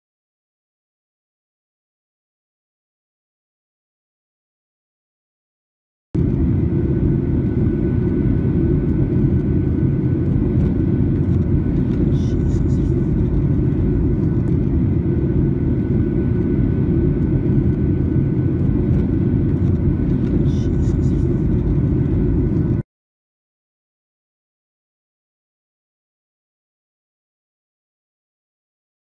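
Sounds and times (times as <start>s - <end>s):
airliner cabin roar: 6.2s - 22.8s
faint steady whine: 6.2s - 22.8s.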